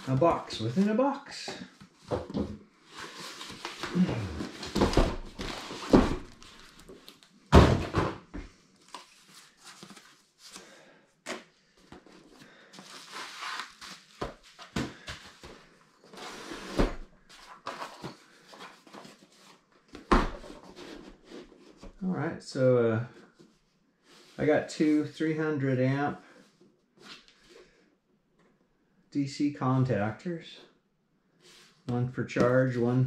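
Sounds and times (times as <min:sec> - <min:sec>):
boxes thumping on wooden table: 0:07.5 - 0:08.4.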